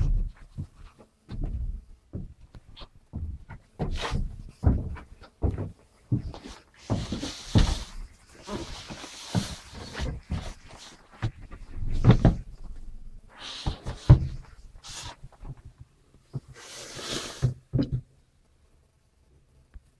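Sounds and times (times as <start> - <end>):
handheld camera thumps and rustling: 0.0 - 12.8, 13.6 - 16.6.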